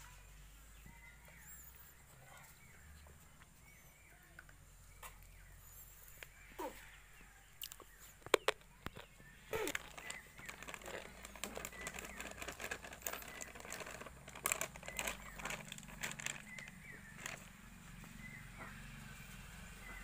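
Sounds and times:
plastic packet crinkling: 8.3 - 17.5.

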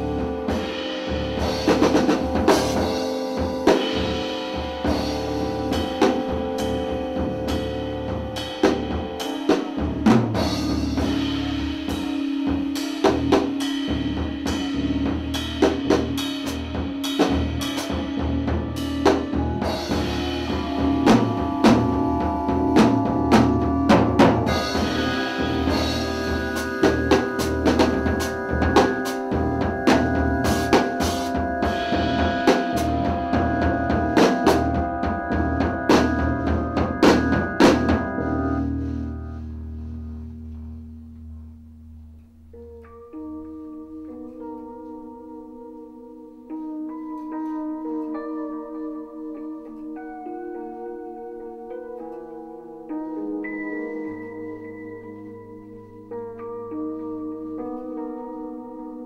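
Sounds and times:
keyboard held tones: 0.0 - 39.6
drum kit played busily: 0.0 - 39.9
low bass drone: 0.0 - 42.9.

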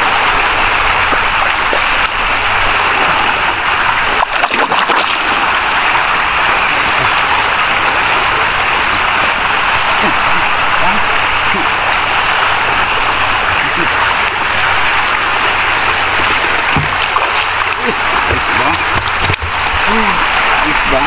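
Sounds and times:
water rushing: 0.0 - 21.0.

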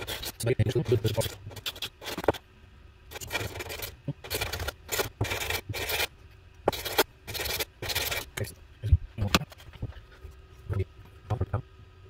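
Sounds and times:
metal part scraping on sandpaper: 0.0 - 2.4, 3.1 - 6.1, 6.7 - 8.5.

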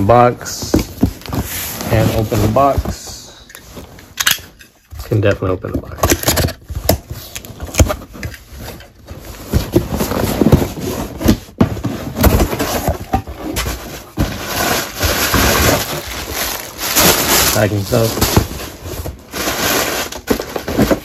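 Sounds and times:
cardboard and paper handled: 5.0 - 21.0.

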